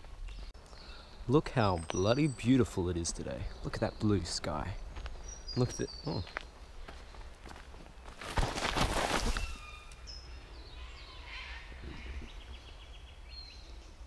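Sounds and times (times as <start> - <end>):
birds calling: 0.0 - 14.0
shoes scuffing on dry leaves: 6.3 - 9.7.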